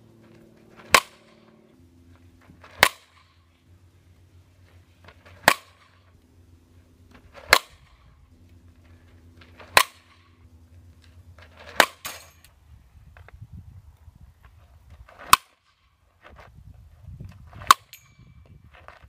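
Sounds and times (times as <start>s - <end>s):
bat striking ball: 0.7s - 1.6s, 2.6s - 3.4s, 5.3s - 6.0s, 7.3s - 8.0s, 9.6s - 10.2s, 11.6s - 12.2s.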